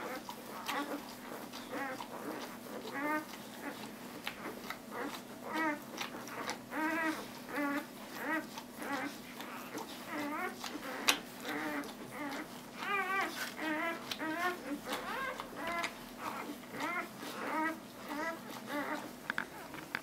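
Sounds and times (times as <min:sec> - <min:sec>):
puppies squeaking and whimpering: 0:00.0 - 0:20.0.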